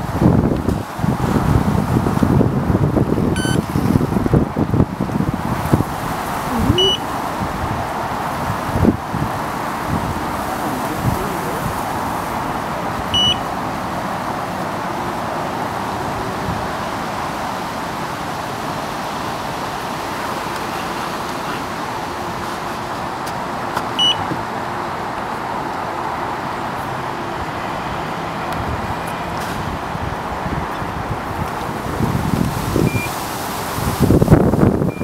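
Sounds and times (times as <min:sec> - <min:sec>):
distant road traffic: 0:00.0 - 0:35.0
high electronic beep: 0:03.4 - 0:03.6, 0:06.6 - 0:07.0, 0:13.1 - 0:13.4, 0:24.0 - 0:24.2, 0:32.9 - 0:33.1.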